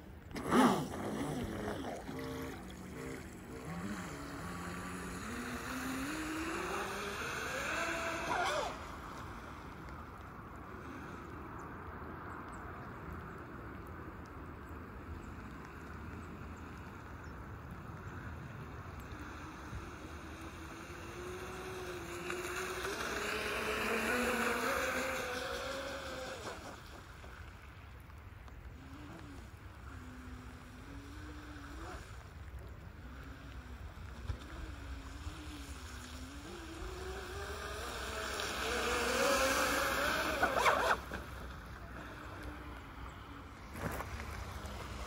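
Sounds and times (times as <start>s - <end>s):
electric motor whining: 0.4s - 9.0s, 34.2s - 42.9s.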